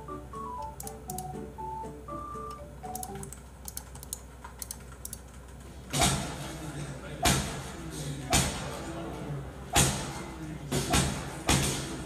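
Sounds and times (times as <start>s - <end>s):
soft background music: 0.0s - 3.4s
computer mouse clicks: 2.9s - 5.6s.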